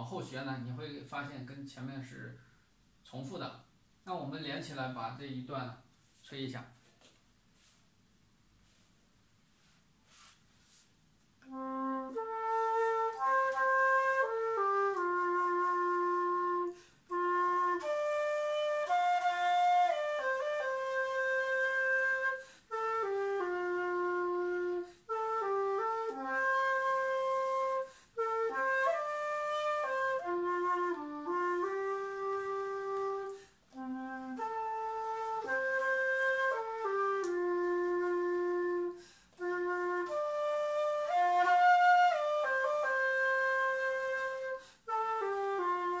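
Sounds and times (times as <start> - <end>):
bamboo flute melody: 11.4 - 46.0.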